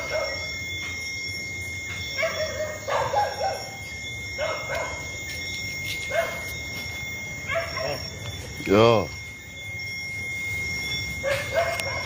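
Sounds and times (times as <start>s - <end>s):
dog barking: 0.0s - 0.5s, 2.2s - 3.8s, 4.4s - 5.1s, 6.0s - 6.5s, 7.4s - 8.0s, 11.2s - 12.0s
steady high-pitched tone: 0.0s - 12.0s.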